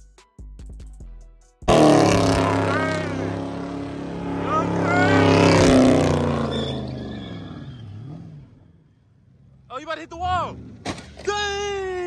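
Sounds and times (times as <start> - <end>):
tyres spinning in a burnout: 1.7 - 8.6
car engine revving: 1.7 - 11.3
people shouting: 2.4 - 3.4, 4.0 - 5.7.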